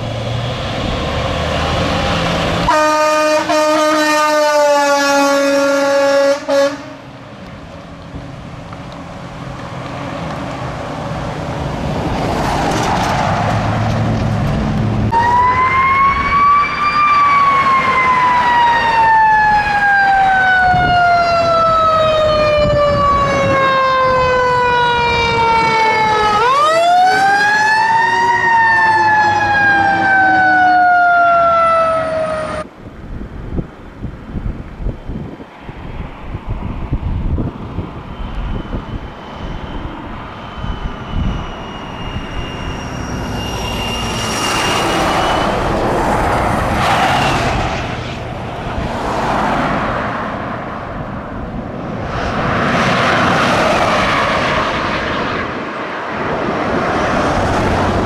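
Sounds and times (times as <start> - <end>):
fire engine siren: 0.0 - 7.1, 15.1 - 32.7, 38.0 - 51.0, 52.2 - 55.6
fire engine horn blast: 2.6 - 7.1.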